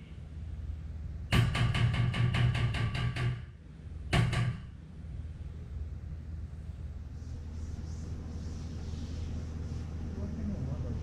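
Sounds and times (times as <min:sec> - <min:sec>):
hammer tapping steel panel: 0:01.3 - 0:04.8.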